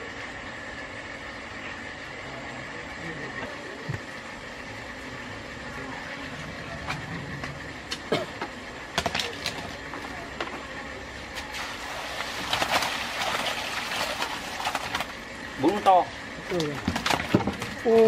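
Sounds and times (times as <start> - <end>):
steady background hum: 0.0 - 18.0
water splashing into basket: 11.4 - 15.2.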